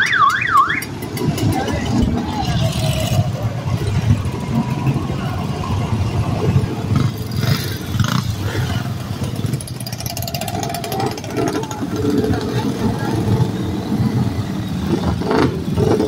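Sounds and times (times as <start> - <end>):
motorcycle engines idling: 0.0 - 16.0.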